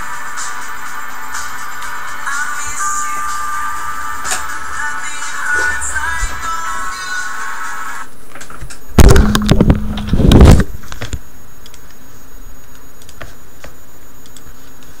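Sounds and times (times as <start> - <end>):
microphone handling rustle: 9.0 - 11.1.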